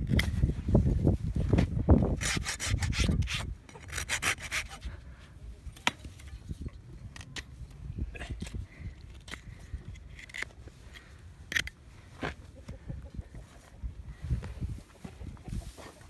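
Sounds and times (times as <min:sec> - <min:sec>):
hoof rasp rubbing: 0:02.2 - 0:04.9.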